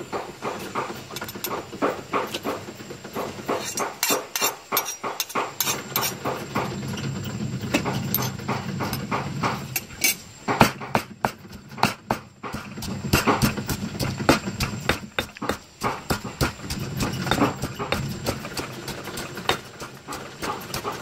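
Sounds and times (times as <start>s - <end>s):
pestle pounding in stone mortar: 0.0s - 6.8s, 10.5s - 21.0s
metal spoon scraping: 3.6s - 6.2s.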